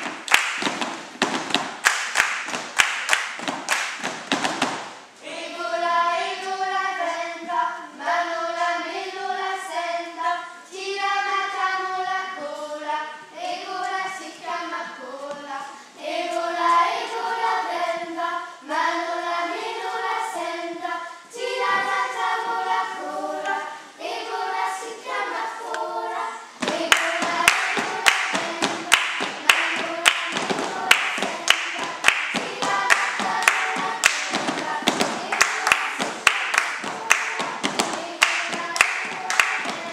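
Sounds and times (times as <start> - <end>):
hand clapping: 0.0 - 5.0, 26.6 - 39.9
girls singing together: 0.0 - 39.9.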